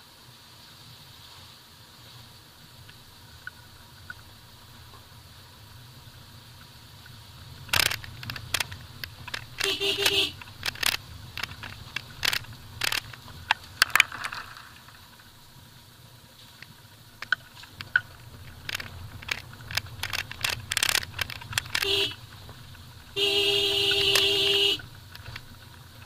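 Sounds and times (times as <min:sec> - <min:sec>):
car engine and road hum: 0:00.0 - 0:26.0
tyres crunching over stones: 0:07.6 - 0:15.4, 0:16.4 - 0:26.0.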